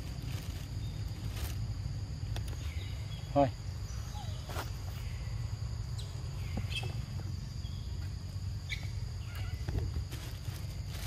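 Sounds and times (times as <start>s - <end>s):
forest insects droning: 0.0s - 11.0s.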